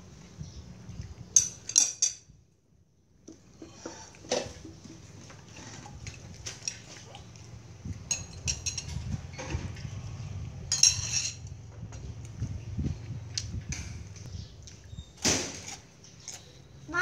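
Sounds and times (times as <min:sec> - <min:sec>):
crockery and cutlery clinking: 0:01.3 - 0:02.3, 0:08.0 - 0:09.8, 0:10.6 - 0:11.6.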